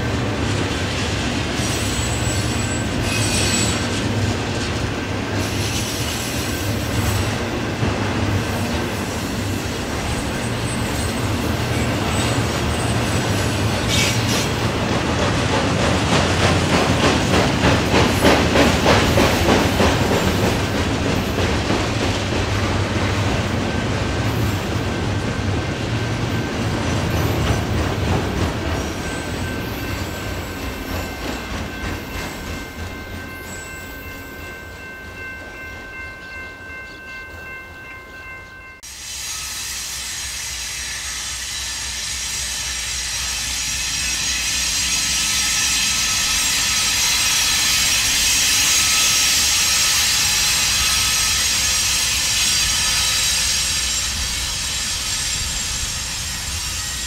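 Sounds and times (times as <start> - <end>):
train wheels clacking on rail joints: 0.0 - 36.9
diesel locomotive running: 0.0 - 57.0.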